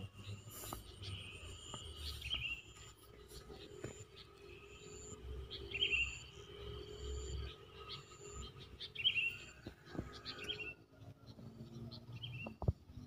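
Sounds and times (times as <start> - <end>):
lower chirps: 0.0 - 10.8.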